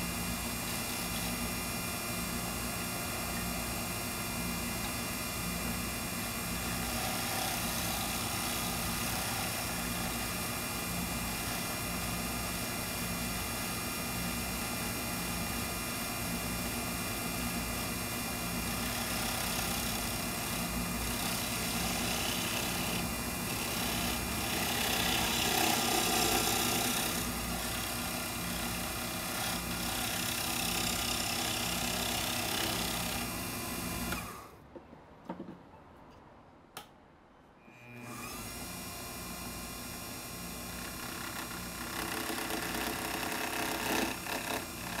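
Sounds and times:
lathe motor hum: 6.0 - 14.0, 18.3 - 34.5, 38.0 - 45.0
turning tool scraping wood: 6.6 - 11.9, 18.8 - 34.4, 40.8 - 45.0.

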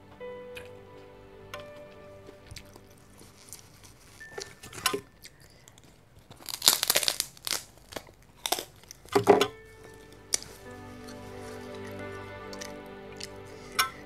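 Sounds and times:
paper tissue crinkling: 3.0 - 9.1.

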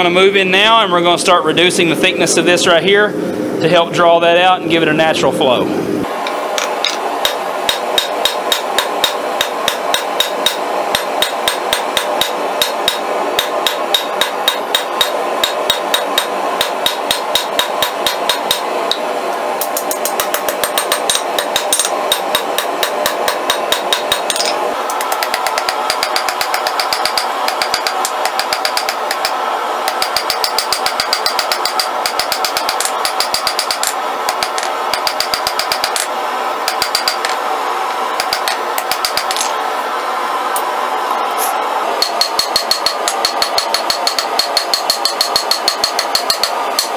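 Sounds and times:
hammer striking steel on anvil: 6.6 - 18.6, 19.6 - 36.1, 36.7 - 37.4, 38.2 - 39.5, 42.0 - 46.9.

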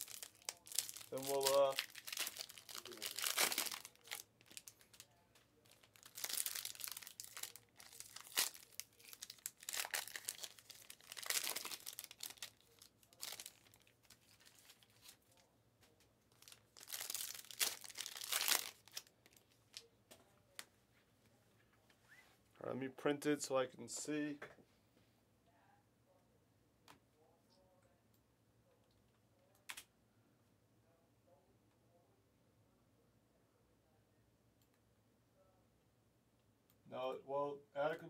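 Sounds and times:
plastic packaging crinkling: 0.0 - 15.2, 16.3 - 19.9.

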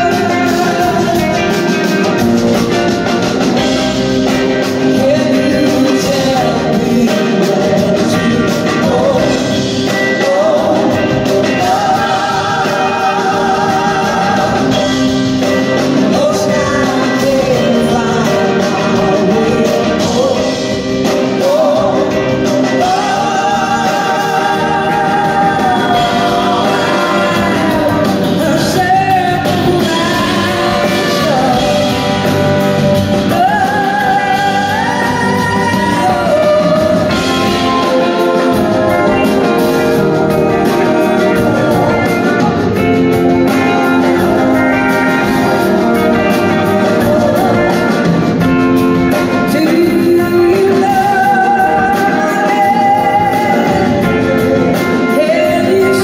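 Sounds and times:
backing singers: 0.0 - 56.0
live rock band playing: 0.0 - 56.0
woman singing lead: 0.0 - 56.0.

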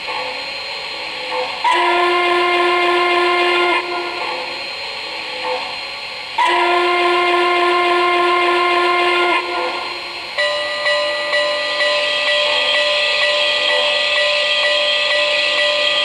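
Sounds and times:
steam whistle blast: 1.6 - 4.7, 6.4 - 16.0
bell ringing: 10.4 - 16.0.

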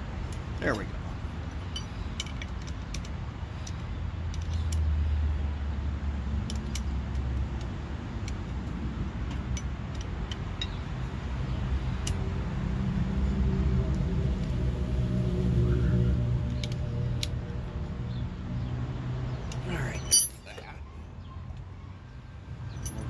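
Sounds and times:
metallic clicks of tools handled: 19.5 - 20.5, 22.7 - 23.0.

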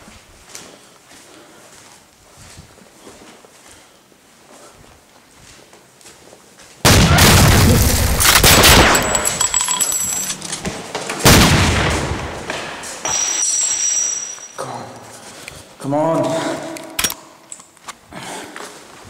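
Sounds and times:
rapid gunfire: 6.9 - 9.2.

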